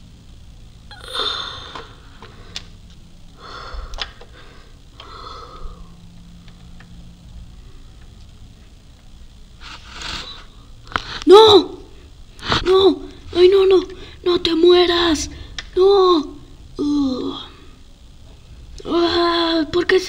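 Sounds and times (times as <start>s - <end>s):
person gasping breathily: 0.9s - 2.6s, 3.4s - 6.0s.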